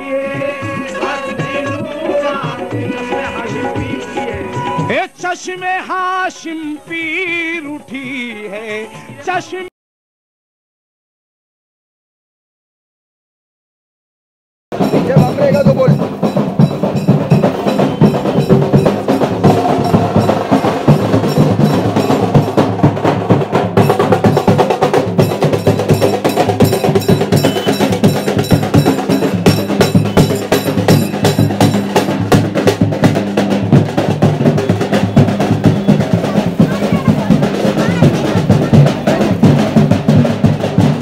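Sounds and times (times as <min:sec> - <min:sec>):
fast drumming: 0:00.0 - 0:05.1, 0:14.7 - 0:41.0.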